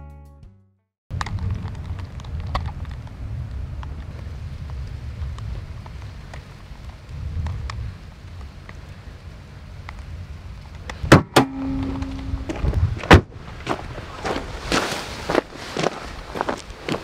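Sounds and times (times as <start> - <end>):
wind rumbling on microphone: 1.1 - 17.0
sharp knocks: 11.1 - 13.3
steady tone: 11.2 - 12.6.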